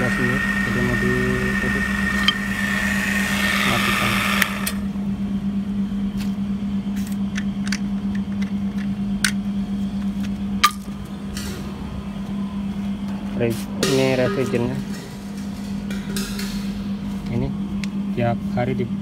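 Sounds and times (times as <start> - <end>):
vacuum pump hissing: 0.0 - 4.9
low steady hum: 0.0 - 19.0.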